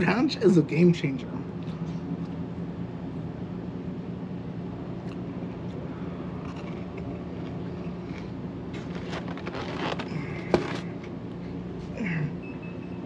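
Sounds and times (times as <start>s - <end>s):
low background hum: 0.0s - 13.0s
styrofoam containers clicking and scraping: 8.7s - 11.0s.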